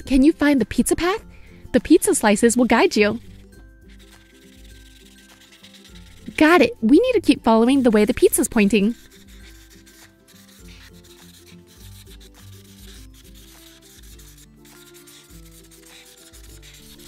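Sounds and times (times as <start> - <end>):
light background music: 0.0 - 17.0
marker scribbling on paper: 3.2 - 6.8, 7.5 - 17.0.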